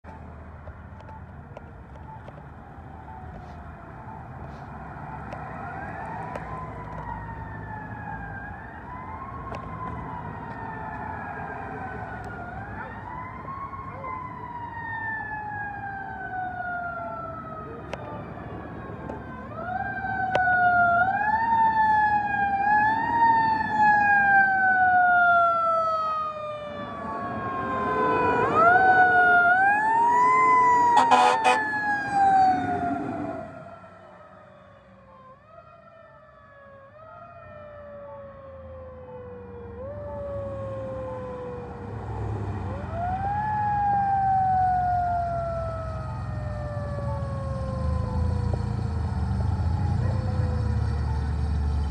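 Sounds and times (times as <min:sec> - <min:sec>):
air horn blasts: 0:31.0 - 0:31.7
heavy truck engine: 0:44.2 - 0:51.9.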